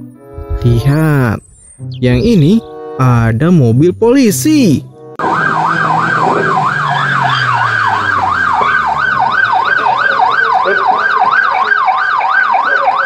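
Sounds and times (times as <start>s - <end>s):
police siren yelping: 5.2s - 13.0s.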